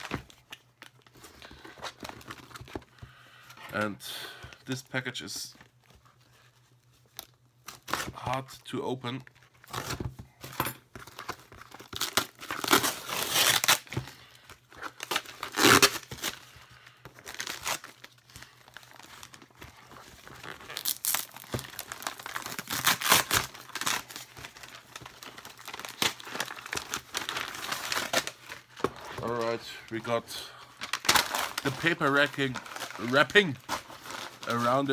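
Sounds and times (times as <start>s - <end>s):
paper wrapping tearing: 11.8s - 13.9s, 14.9s - 16.3s, 20.2s - 28.4s.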